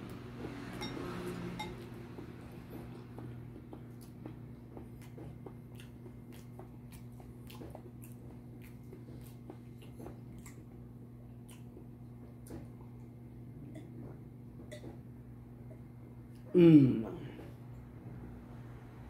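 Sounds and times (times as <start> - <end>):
low electrical hum: 0.0 - 19.0
chewing and wet mouth sounds: 0.1 - 15.0.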